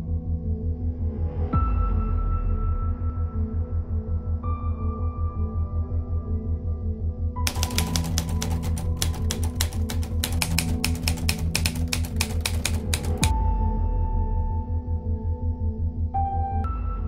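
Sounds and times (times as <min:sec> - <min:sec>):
typewriter key clacks: 0:07.5 - 0:13.3.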